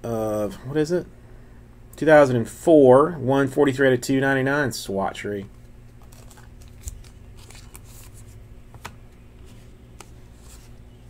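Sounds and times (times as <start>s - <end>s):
steady low hum: 0.0s - 11.0s
trading cards rustling: 5.5s - 11.0s.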